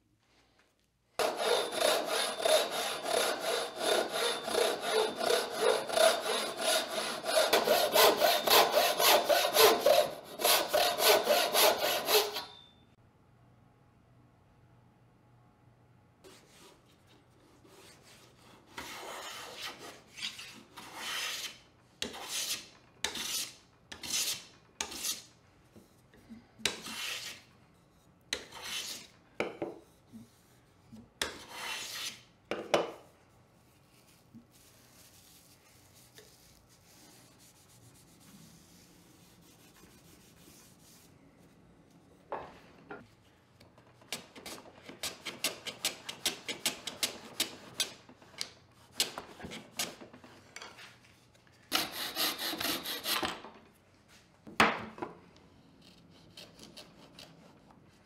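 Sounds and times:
hand plane scraping wood: 0:01.2 - 0:12.6, 0:17.7 - 0:25.2, 0:26.6 - 0:27.4, 0:28.4 - 0:29.1, 0:31.3 - 0:32.2, 0:51.7 - 0:53.2.

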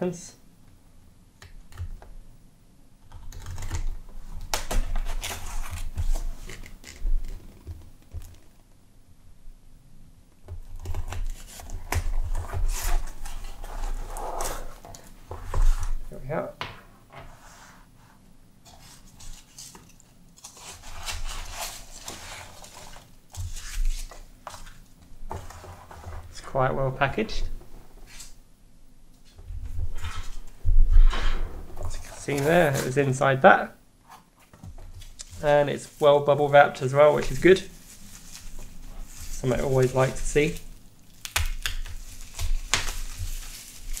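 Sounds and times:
cardboard rustling and scraping: 0:04.2 - 0:08.7, 0:10.7 - 0:16.1, 0:17.2 - 0:26.5, 0:29.2 - 0:33.2, 0:34.0 - 0:40.7
knife slitting packing tape: 0:20.4 - 0:22.9
cardboard scraping and rustling: 0:29.8 - 0:33.2.

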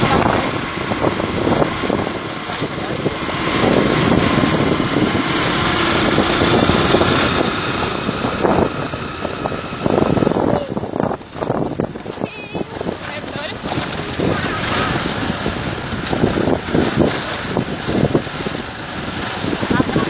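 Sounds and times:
motorcycle engine running: 0:00.0 - 0:20.0
wind buffeting microphone: 0:00.0 - 0:20.0.

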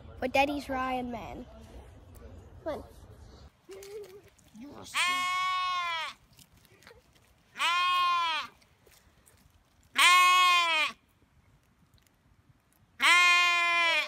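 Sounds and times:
lamb bleating: 0:04.9 - 0:06.2, 0:07.6 - 0:08.5, 0:09.9 - 0:11.0, 0:13.0 - 0:14.0.

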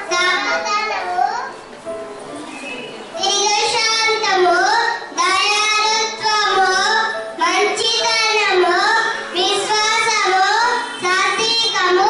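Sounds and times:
boy singing into a microphone: 0:03.2 - 0:12.0.

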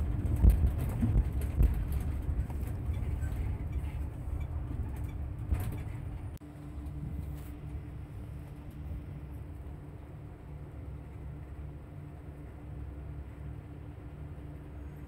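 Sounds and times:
bus engine and road rumble: 0:00.0 - 0:15.0
faint hum: 0:00.0 - 0:15.0.

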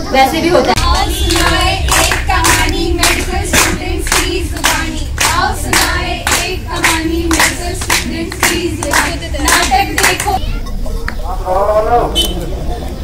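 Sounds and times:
voices singing: 0:00.1 - 0:10.4
group clapping in rhythm: 0:00.7 - 0:10.4.

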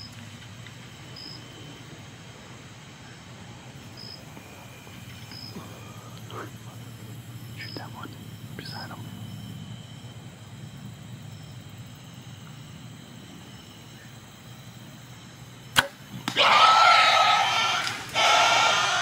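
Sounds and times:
low steady hum: 0:00.0 - 0:19.0
bow release snap: 0:15.7 - 0:16.4.

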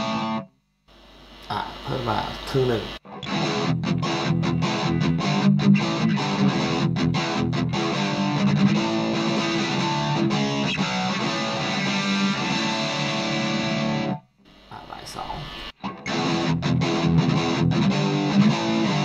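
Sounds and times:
distorted electric guitar chords: 0:00.0 - 0:19.0.

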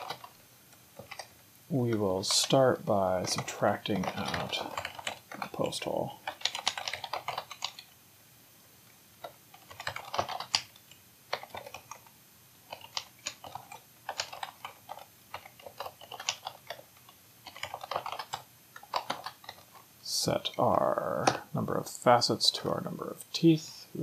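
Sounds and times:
typing on computer keyboard: 0:00.0 - 0:00.4, 0:01.0 - 0:01.4, 0:03.2 - 0:08.0, 0:09.2 - 0:19.8.

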